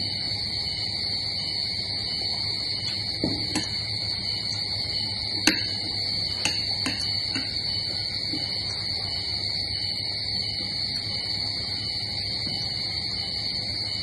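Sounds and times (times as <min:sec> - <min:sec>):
steady high-pitched whine: 0:00.0 - 0:14.0
spoons clinking on ceramic plates: 0:03.5 - 0:03.8, 0:05.5 - 0:05.8, 0:06.4 - 0:07.6.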